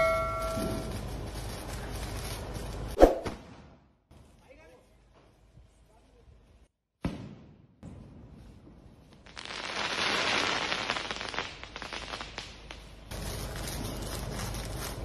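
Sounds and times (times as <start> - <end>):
firework bang: 7.0 - 8.3.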